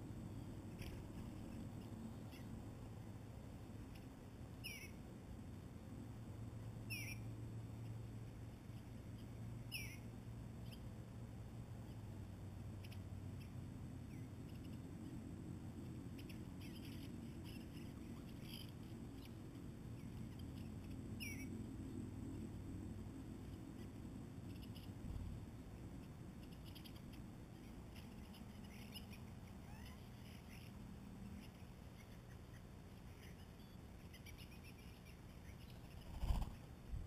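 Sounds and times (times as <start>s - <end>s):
low background rumble: 0.0s - 37.0s
faint bird chips: 23.8s - 25.3s, 26.0s - 36.8s.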